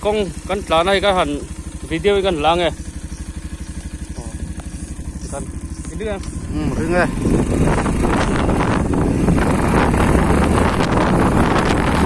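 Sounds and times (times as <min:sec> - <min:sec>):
motorcycle engine running: 0:00.0 - 0:12.0
wind buffeting microphone: 0:04.4 - 0:12.0.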